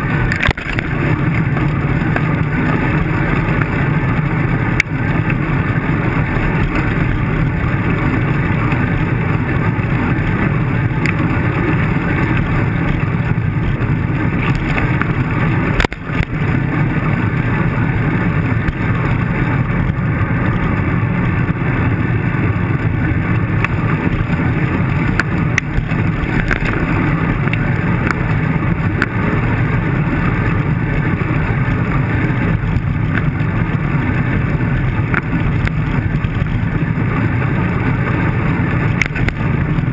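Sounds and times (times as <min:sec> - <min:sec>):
wind and road rumble: 0:00.0 - 0:39.9.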